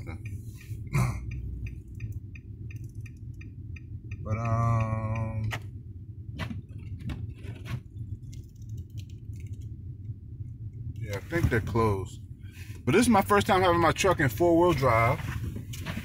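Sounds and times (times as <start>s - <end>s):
turn signal ticking: 0.0s - 7.3s.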